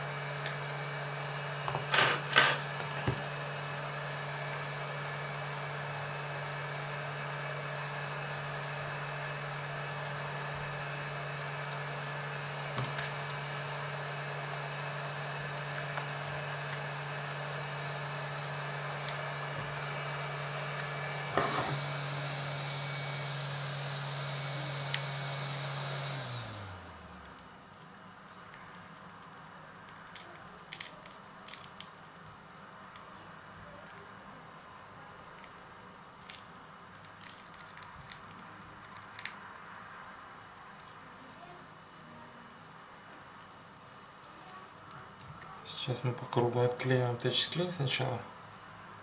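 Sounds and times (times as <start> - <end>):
hot air blower humming and hissing: 0.0 - 27.4, 45.0 - 49.0.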